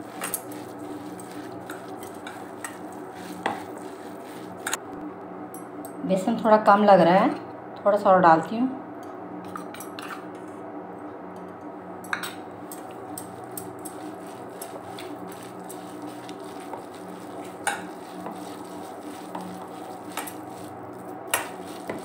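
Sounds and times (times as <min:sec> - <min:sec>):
hand mixing batter in bowl: 0:00.0 - 0:04.8, 0:13.0 - 0:22.0.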